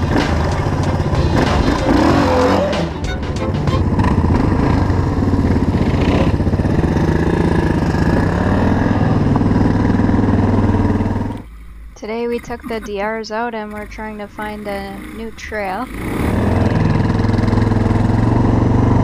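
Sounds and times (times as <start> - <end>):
motorcycle engine idling: 0.0 - 11.4.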